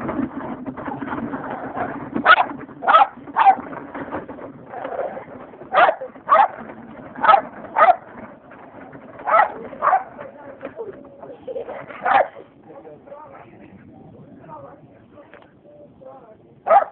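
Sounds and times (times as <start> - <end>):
small dog barking: 2.3 - 3.6, 5.7 - 6.6, 7.2 - 8.0, 9.3 - 10.1, 12.0 - 12.3, 16.7 - 16.9.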